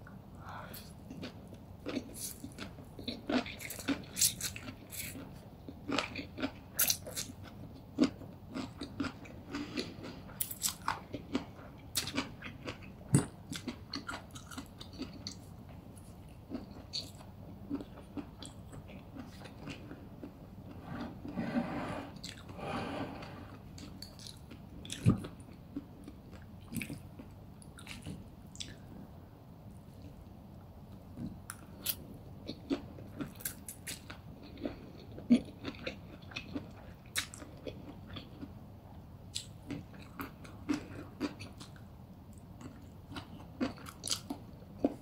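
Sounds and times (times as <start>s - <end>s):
crunching and chewing food: 0.5s - 21.4s, 22.2s - 29.1s, 30.9s - 45.0s.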